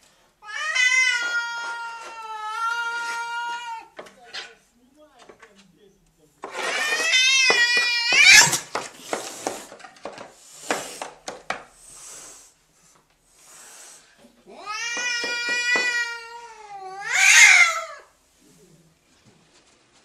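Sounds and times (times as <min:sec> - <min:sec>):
cat yowling: 0:00.4 - 0:04.0, 0:06.6 - 0:08.6, 0:14.5 - 0:18.1.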